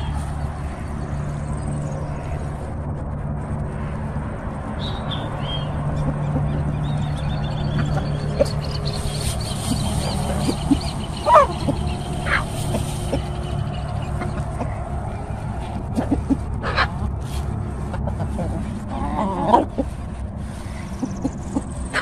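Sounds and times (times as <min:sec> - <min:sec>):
steady low hum: 0:00.0 - 0:22.0
chickens pecking: 0:04.8 - 0:22.0
faint high chirping: 0:06.3 - 0:14.5
chicken squawk: 0:07.8 - 0:13.5, 0:15.9 - 0:17.0.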